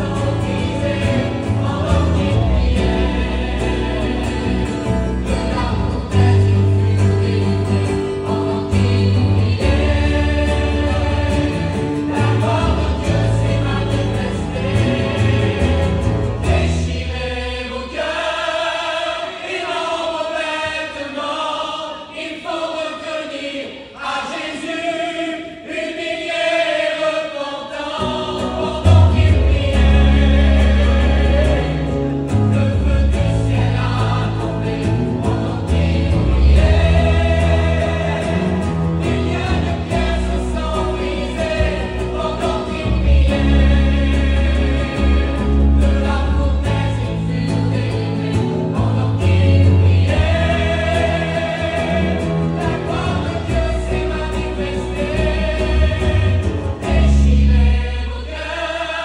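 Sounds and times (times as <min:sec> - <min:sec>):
guitar accompaniment: 0:00.0 - 0:17.6, 0:27.9 - 0:58.2
choir singing a hymn: 0:00.0 - 0:59.0
deep bass notes: 0:28.7 - 0:57.9.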